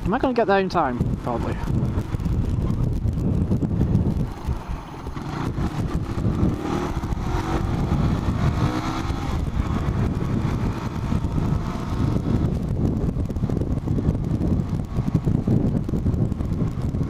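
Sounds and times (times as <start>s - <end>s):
constant low rumble: 0.0s - 17.0s
motorcycle engine accelerating: 1.0s - 17.0s.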